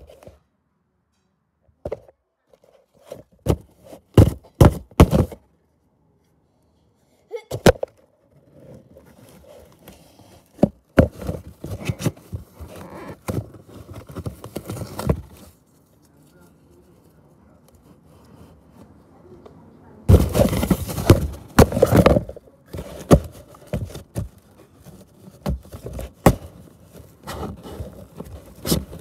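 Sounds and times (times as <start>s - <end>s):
cardboard box being struck: 3.4s - 5.4s, 10.6s - 15.4s, 20.1s - 24.4s, 25.3s - 29.0s
cardboard tearing and crunching: 20.1s - 29.0s.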